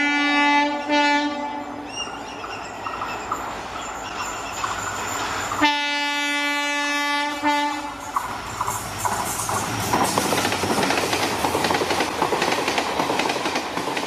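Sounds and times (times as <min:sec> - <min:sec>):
train horn blast: 0:00.0 - 0:01.9, 0:05.6 - 0:08.1
passing train rumbling: 0:00.0 - 0:14.0
clickety-clack of wheels: 0:02.0 - 0:05.9, 0:07.8 - 0:14.0.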